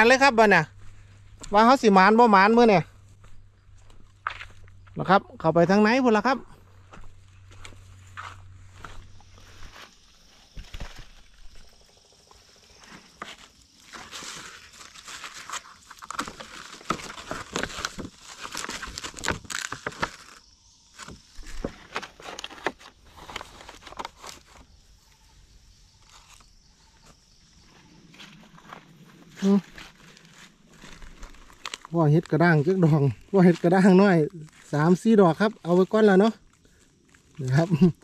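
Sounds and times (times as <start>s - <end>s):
footsteps crunching through leaf litter: 0.0s - 5.1s, 6.5s - 11.7s, 13.0s - 20.4s, 28.0s - 36.3s.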